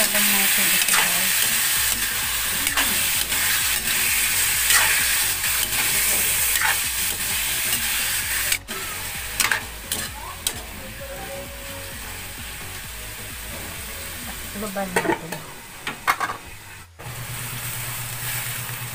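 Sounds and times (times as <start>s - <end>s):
metal spatula scraping pan: 0.0s - 10.6s
chicken sizzling in hot oil: 0.0s - 18.9s.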